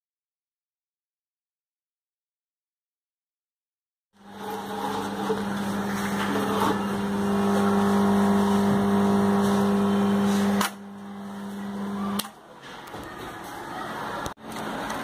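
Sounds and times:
relay mains buzz: 0:04.2 - 0:12.4.

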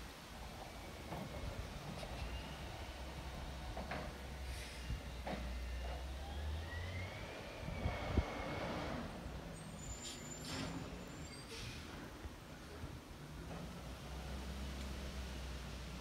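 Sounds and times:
brief high squeal: 0:09.6 - 0:11.9.

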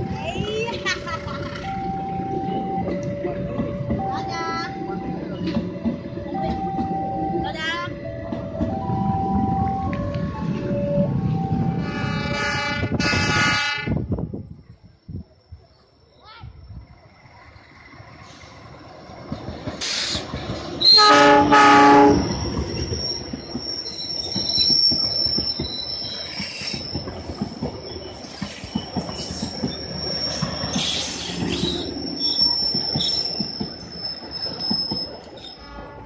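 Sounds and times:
train horn blasts: 0:11.8 - 0:14.0, 0:20.8 - 0:22.2, 0:35.6 - 0:36.0
train wheels clattering over rail joints: 0:18.2 - 0:35.4
high wheel squeal: 0:19.8 - 0:36.0.

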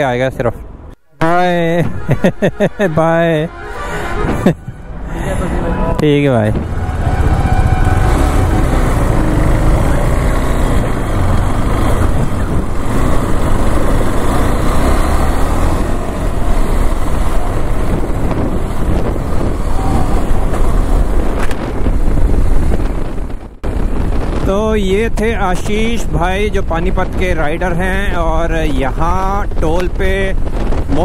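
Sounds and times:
wind rumble on microphone: 0:03.8 - 0:31.0
motorcycle engine accelerating: 0:06.4 - 0:24.4.

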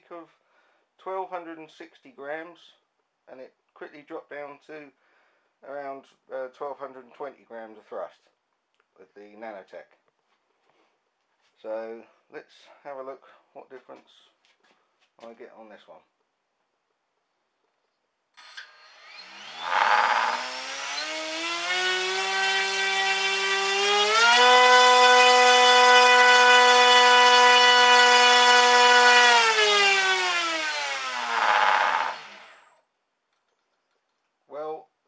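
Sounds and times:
electric motor propeller whine: 0:18.6 - 0:22.3.

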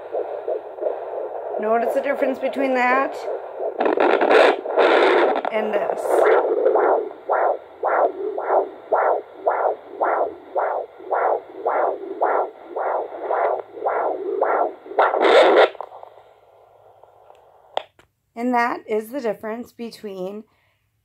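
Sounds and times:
doppler heartbeat whooshing pulses: 0:00.0 - 0:16.2
probe scraping: 0:00.0 - 0:16.2
low hiss: 0:00.0 - 0:17.8.

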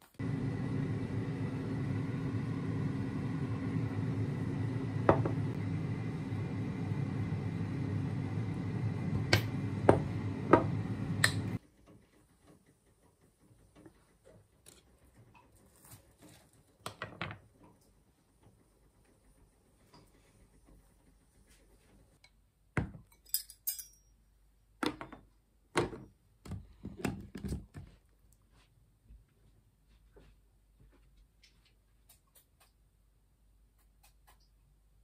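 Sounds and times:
kitchen appliance humming: 0:00.0 - 0:11.6.

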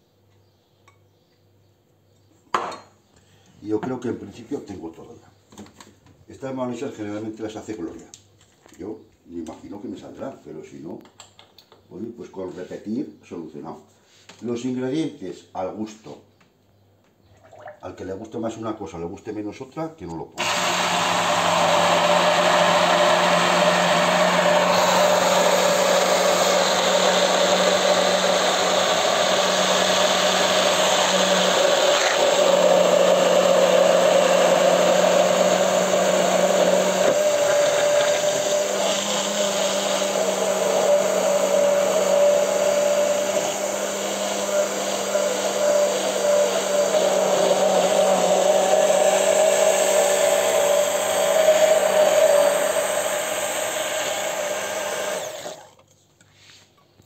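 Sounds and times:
immersion blender motor whine: 0:20.4 - 0:55.7.

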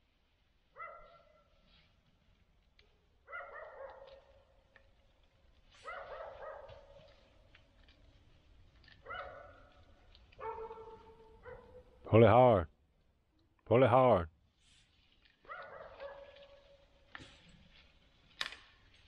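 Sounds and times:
distant dogs barking: 0:00.8 - 0:01.6, 0:03.3 - 0:04.4, 0:05.8 - 0:07.2, 0:09.0 - 0:12.2, 0:15.4 - 0:16.7.

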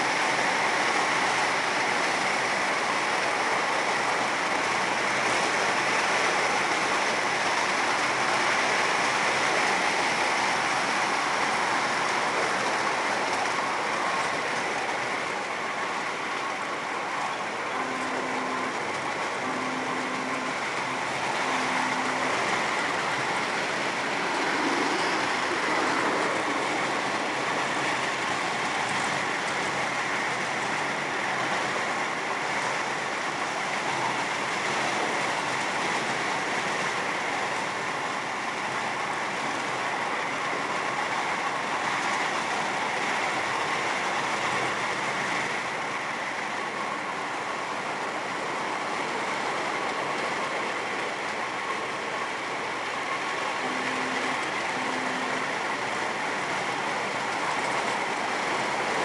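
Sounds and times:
train wheels rolling on rails: 0:00.0 - 0:59.0
short low tones: 0:17.7 - 0:23.5, 0:53.6 - 0:55.8.

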